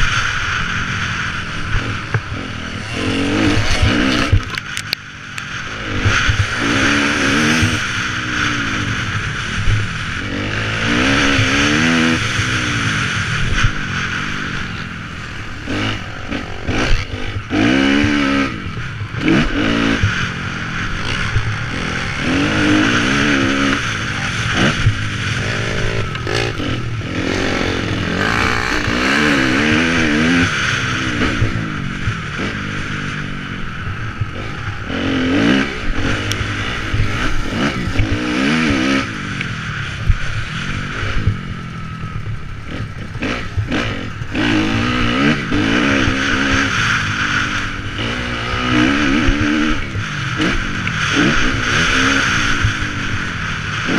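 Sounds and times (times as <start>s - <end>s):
motocross bike engine revving: 0.0s - 53.9s.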